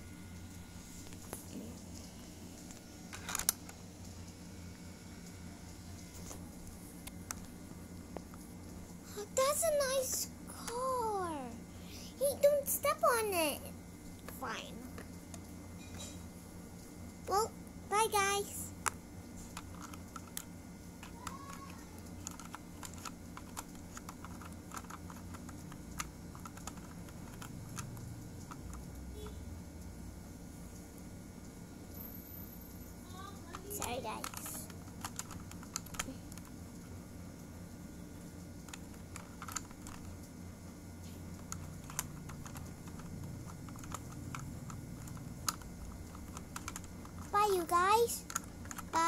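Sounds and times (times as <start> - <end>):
low steady hum: 0.0 - 49.0
small toys clicking and tapping: 9.3 - 11.6, 18.0 - 29.3, 33.3 - 36.6, 38.5 - 40.3, 41.2 - 49.0
plastic toy clicks and taps: 19.6 - 28.6.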